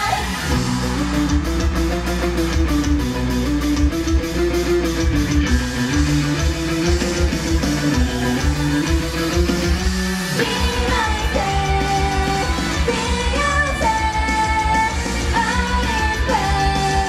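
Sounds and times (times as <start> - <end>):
guitar: 0.0 - 17.0
live rock music: 0.0 - 17.0
drum beat: 3.8 - 12.6.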